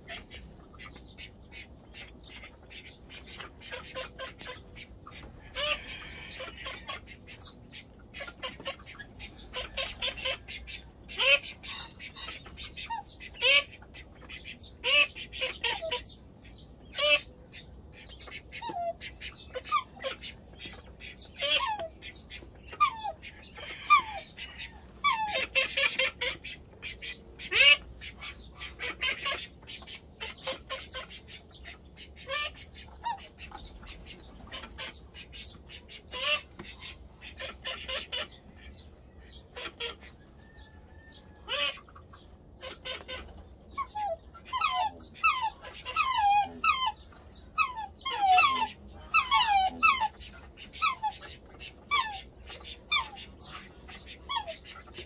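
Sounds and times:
swans calling: 41.4 - 55.0.

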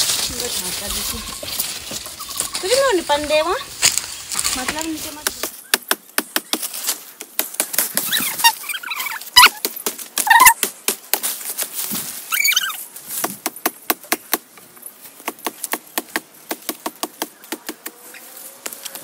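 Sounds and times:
blade hacking at branches: 3.8 - 8.5
short high-pitched calls: 12.3 - 12.8.

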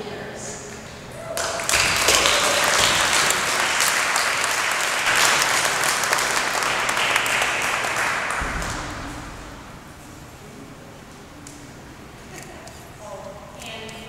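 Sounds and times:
audience applauding: 1.3 - 9.7.

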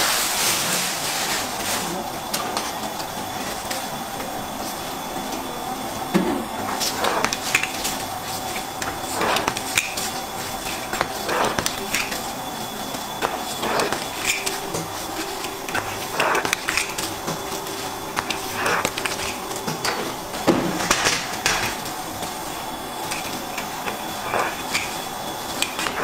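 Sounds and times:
steady hum: 0.0 - 26.0
plastic scraper scraping tabletop: 6.2 - 12.2, 13.2 - 21.8, 23.1 - 26.0.

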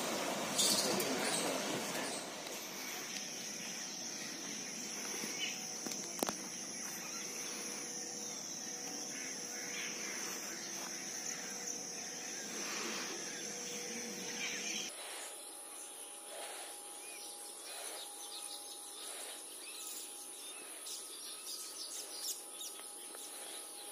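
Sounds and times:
high-pitched insect drone: 0.5 - 23.9.

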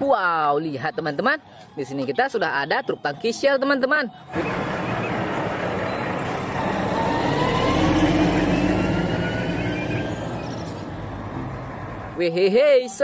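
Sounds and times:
truck driving past: 4.3 - 12.2.

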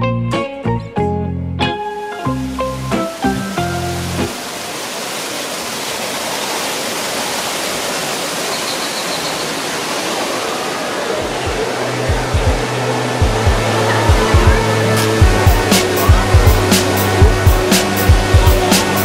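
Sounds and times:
musical notes: 0.0 - 4.5, 11.2 - 19.0
falling water rushing: 1.8 - 19.0
low pulsing bass music: 11.3 - 19.0.

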